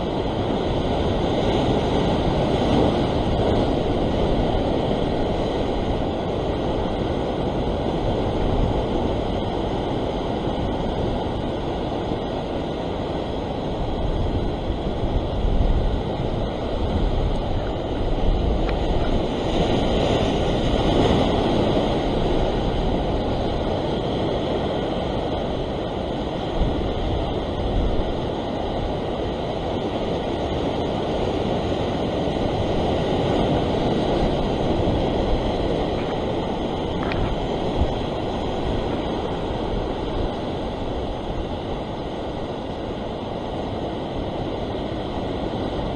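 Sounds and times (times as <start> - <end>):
surf breaking over rocks: 0.0 - 45.9
wind buffeting microphone: 0.0 - 45.9.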